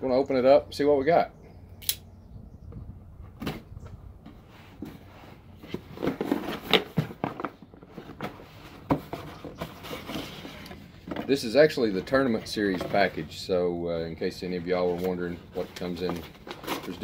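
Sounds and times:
sharp clicks: 1.8 - 2.0
cardboard flaps rustling and scraping: 3.3 - 13.4, 14.5 - 17.0.

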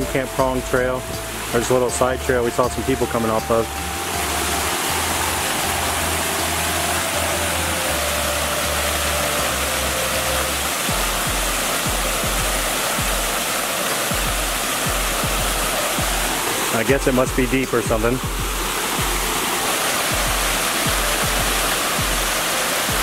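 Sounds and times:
low bass notes: 0.0 - 23.0
waterfall rushing into pool: 0.0 - 23.0
steady drum beat: 10.8 - 23.0.

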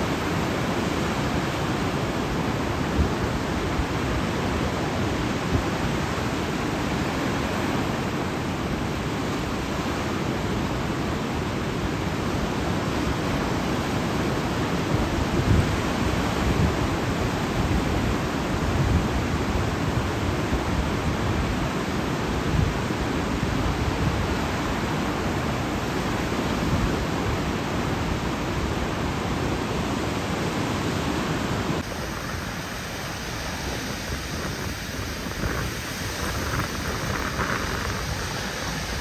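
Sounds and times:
surf washing on shore: 0.0 - 39.0.

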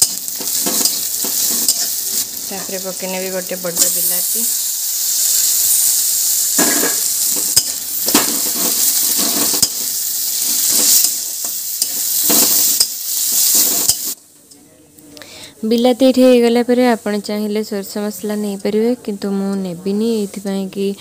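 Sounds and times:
vegetables sizzling in hot oil: 0.0 - 14.2.

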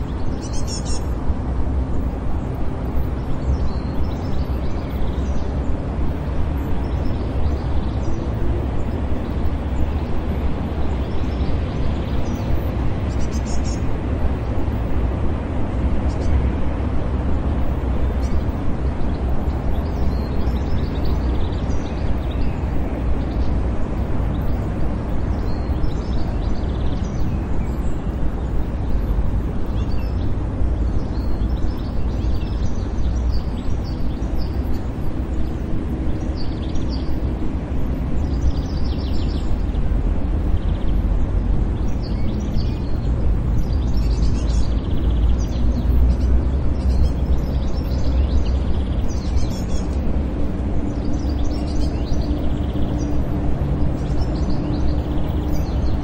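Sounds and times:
distant traffic rumble: 0.0 - 56.0
faint bird chirps: 0.3 - 1.2.

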